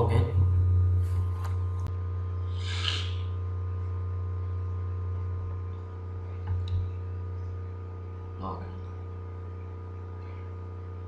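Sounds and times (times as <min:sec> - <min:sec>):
low electrical hum: 0:00.0 - 0:11.0
puff of hiss: 0:02.5 - 0:03.3.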